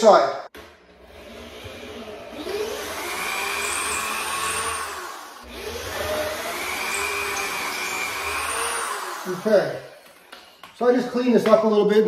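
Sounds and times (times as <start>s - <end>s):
electric drill drilling into wood: 1.0s - 10.6s.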